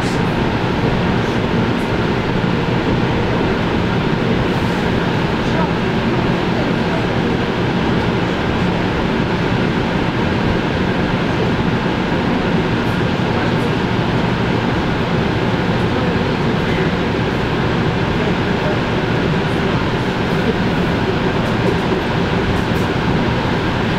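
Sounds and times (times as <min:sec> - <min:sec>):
train rumble and hiss: 0:00.0 - 0:23.9.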